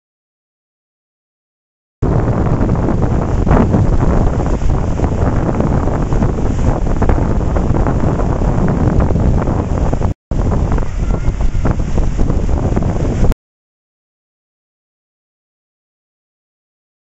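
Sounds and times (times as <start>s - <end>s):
lake waves breaking: 2.0s - 13.3s
wind buffeting microphone: 2.0s - 13.4s.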